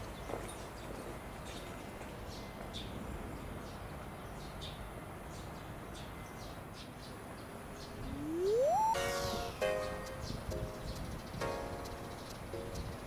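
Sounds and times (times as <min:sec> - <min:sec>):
small birds chirping: 0:03.6 - 0:13.0
low outdoor background: 0:03.9 - 0:13.0
rising tone: 0:08.0 - 0:09.6.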